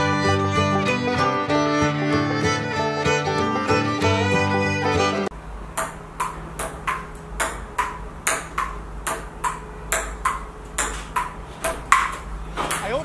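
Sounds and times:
table tennis ball clicking: 5.8s - 12.9s.

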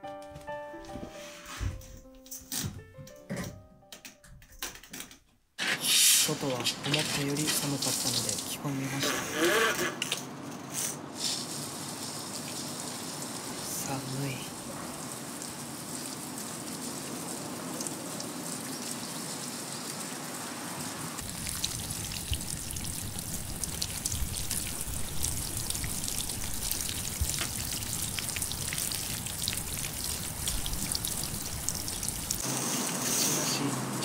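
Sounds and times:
water pattering on leaves: 6.8s - 8.6s, 11.2s - 14.4s, 21.2s - 32.6s.

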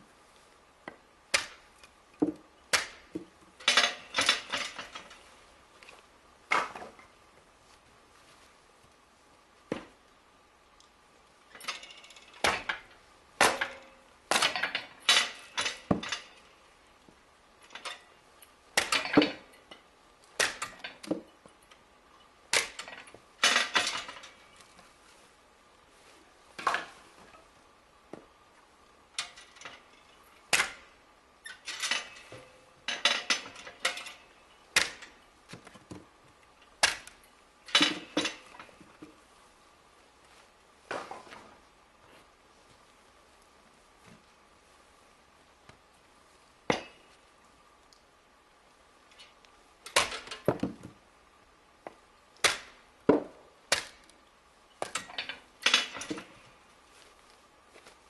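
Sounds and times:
logs being split with cracks: 0.9s - 5.2s, 5.8s - 7.2s, 10.8s - 18.0s, 18.7s - 21.8s, 22.5s - 24.9s, 30.5s - 31.7s, 33.3s - 39.2s, 49.2s - 51.0s, 51.8s - 56.4s.

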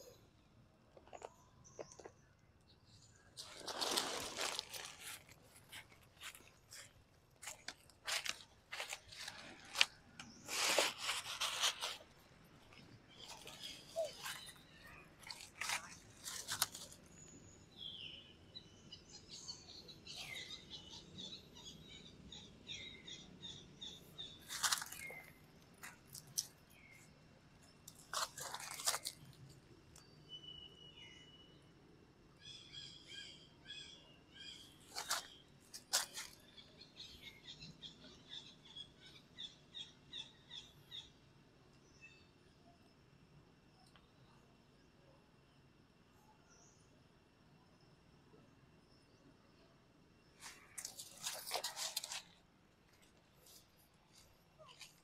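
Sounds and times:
bird chirping: 0.0s - 31.7s, 32.3s - 42.9s
dry leaves crackling underfoot: 3.4s - 17.2s, 24.4s - 26.9s, 27.9s - 29.5s, 34.9s - 36.4s, 50.4s - 55.0s.

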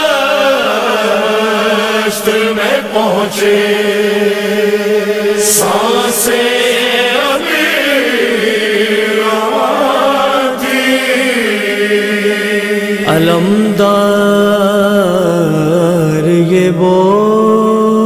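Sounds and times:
held vocal drone: 0.0s - 18.0s
man singing lament: 12.8s - 18.0s.

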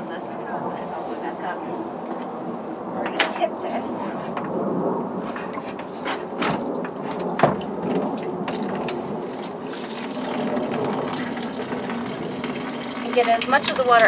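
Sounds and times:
water running into watering can: 6.7s - 14.0s.

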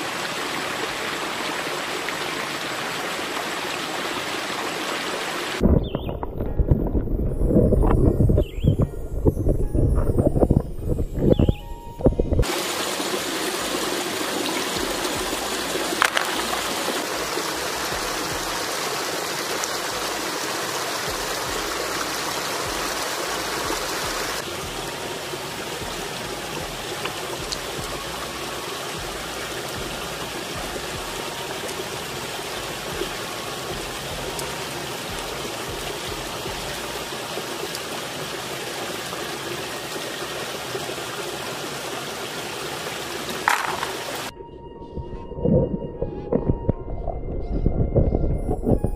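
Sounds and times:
river water flowing over stones: 0.0s - 5.7s, 12.4s - 44.3s.

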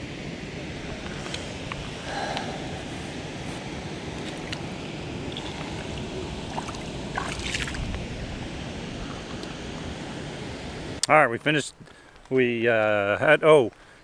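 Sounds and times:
wind on microphone: 0.0s - 11.0s
water lapping at shoreline: 0.8s - 10.5s.

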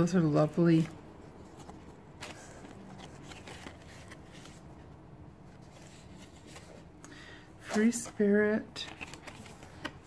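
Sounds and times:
paper rustling and clicking: 1.5s - 4.6s, 8.8s - 10.0s.

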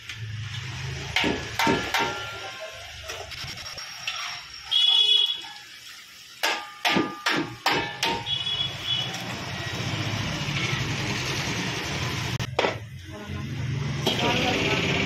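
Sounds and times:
chicken frying in oil: 0.0s - 15.0s
metal skimmer clanking on iron pan: 1.2s - 2.6s, 6.4s - 8.4s.

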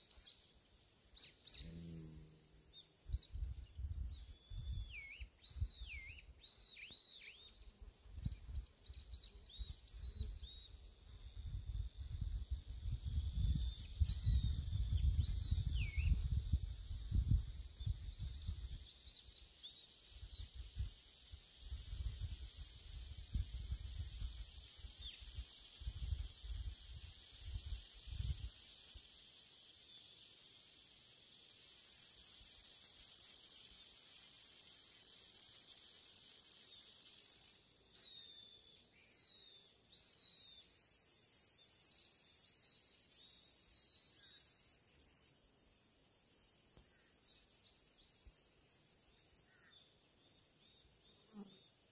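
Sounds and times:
insects buzzing: 0.0s - 51.9s.

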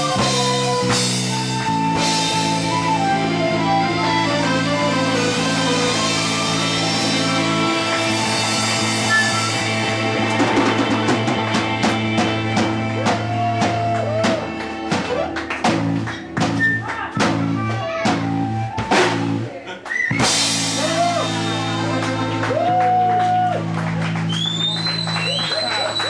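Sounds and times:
live band playing: 0.0s - 26.0s
drum hits: 9.0s - 19.5s.

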